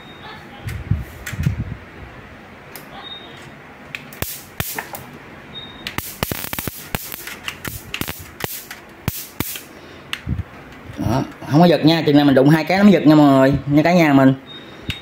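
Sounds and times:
electric grid sparks snapping: 4.0 - 5.0, 5.9 - 9.7.

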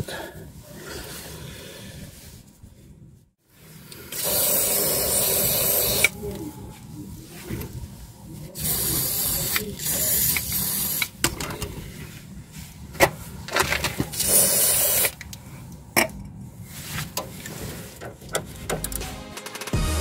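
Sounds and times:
aerosol spray can hissing: 4.2 - 6.2, 14.2 - 15.1.

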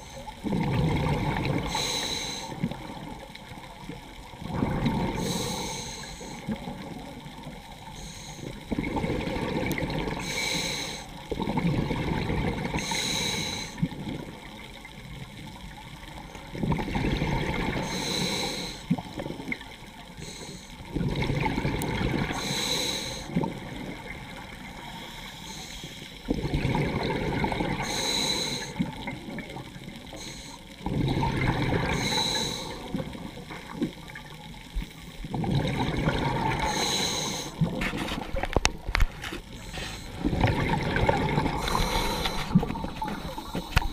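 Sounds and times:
exhaled bubbles rushing: 0.4 - 1.8, 4.2 - 5.3, 8.7 - 10.2, 11.3 - 12.8, 16.5 - 17.8, 20.9 - 22.4, 26.3 - 27.8, 30.8 - 32.0, 35.2 - 36.8, 37.5 - 43.9
diver breathing through regulator: 1.6 - 2.6, 4.9 - 6.4, 8.0 - 8.6, 10.2 - 11.2, 12.7 - 13.8, 17.6 - 18.9, 20.2 - 20.8, 22.2 - 23.3, 24.8 - 26.3, 27.8 - 28.8, 30.1 - 30.8, 31.8 - 32.9, 36.6 - 40.4, 41.3 - 43.9.

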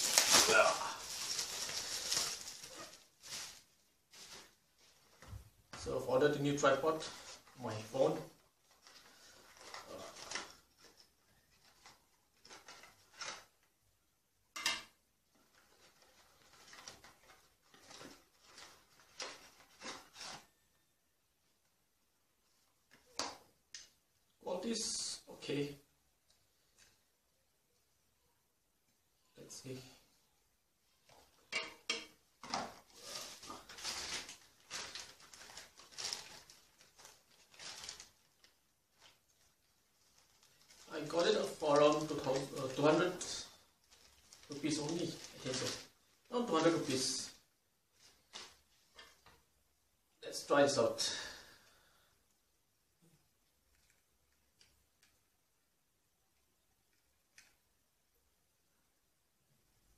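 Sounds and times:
paper packaging crinkling: 0.0 - 5.3, 8.6 - 13.6, 15.4 - 20.6, 32.4 - 49.4.

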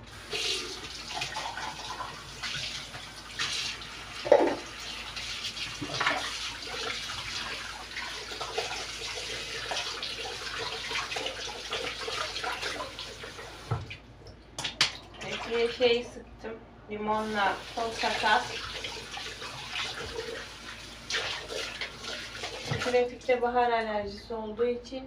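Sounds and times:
tap water running into sink: 0.1 - 15.8, 17.6 - 23.3
dishes knocking: 4.3 - 4.6.

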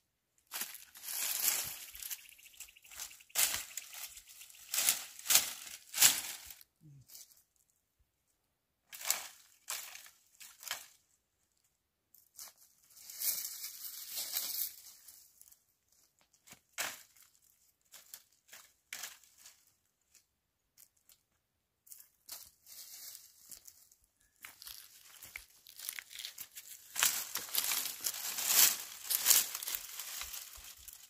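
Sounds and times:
dry branches rustling and crackling: 0.4 - 7.7, 8.9 - 31.0
branches snapping: 2.9 - 6.6, 24.6 - 31.0.

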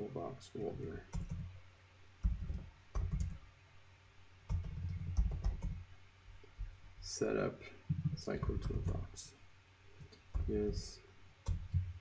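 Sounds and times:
computer keyboard typing: 1.1 - 1.5, 2.2 - 3.4, 4.5 - 5.8, 10.0 - 11.9.

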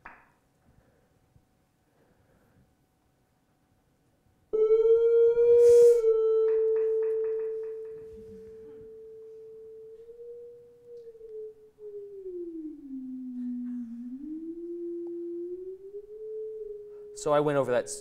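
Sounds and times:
synthesised tone changing pitch: 4.6 - 18.0.

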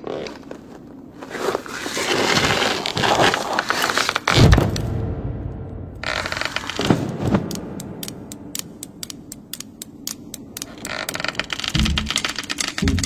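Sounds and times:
low rumble: 4.5 - 9.4
knitting needles clicking: 7.5 - 13.0.

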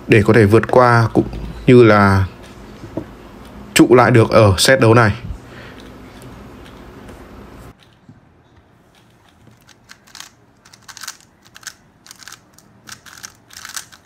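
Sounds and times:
plastic puzzle cube clicking: 9.5 - 14.0.

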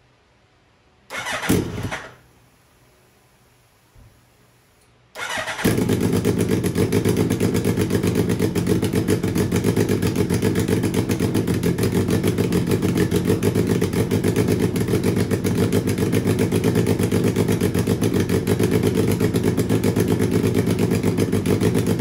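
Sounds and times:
engine starter cranking: 1.1 - 2.2, 5.2 - 5.9
motorcycle engine idling: 5.2 - 22.0.

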